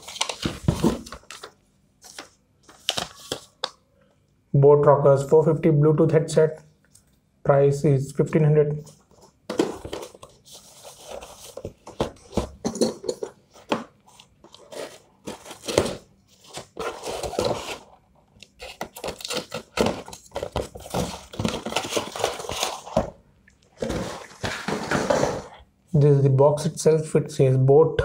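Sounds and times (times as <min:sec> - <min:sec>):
cardboard rustling and tearing: 0:00.0 - 0:01.5, 0:13.6 - 0:18.0, 0:18.6 - 0:23.1.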